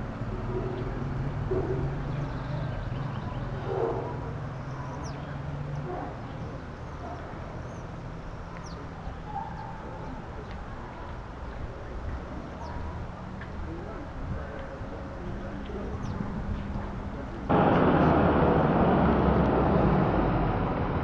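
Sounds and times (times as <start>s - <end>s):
low engine hum: 10.4s - 21.0s.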